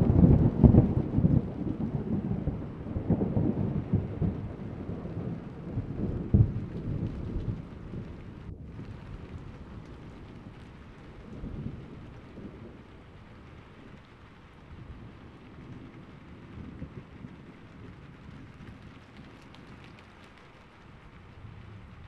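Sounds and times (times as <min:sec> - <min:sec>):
low rolling thunder: 0:00.0 - 0:22.0
steady rain: 0:00.0 - 0:22.0.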